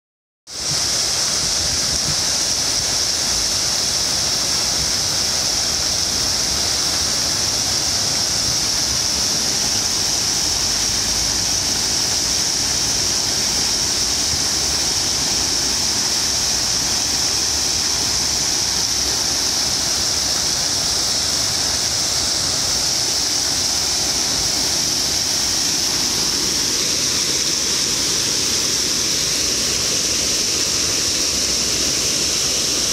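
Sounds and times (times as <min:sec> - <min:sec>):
fountain water splashing: 0:00.5 - 0:32.9.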